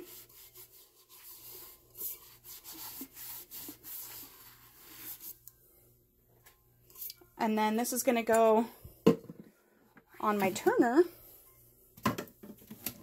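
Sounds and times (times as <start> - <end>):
cloth wiping strokes: 0.0 - 5.4.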